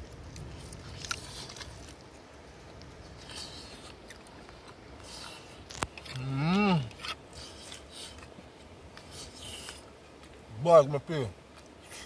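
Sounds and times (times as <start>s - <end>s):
man humming mmm while eating: 6.0s - 7.0s.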